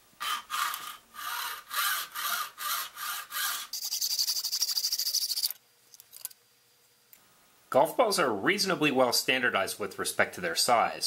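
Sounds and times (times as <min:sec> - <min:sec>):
hacksaw cutting plastic pipe: 0:00.2 - 0:04.1.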